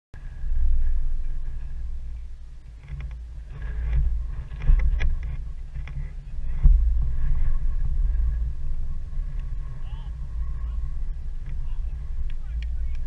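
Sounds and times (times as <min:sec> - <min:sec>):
wind buffeting microphone: 0:00.2 - 0:13.0.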